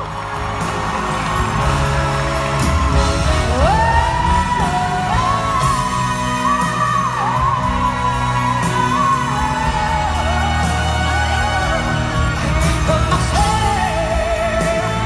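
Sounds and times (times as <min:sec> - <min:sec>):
piano and band accompaniment: 0:00.0 - 0:15.0
woman singing: 0:03.2 - 0:15.0.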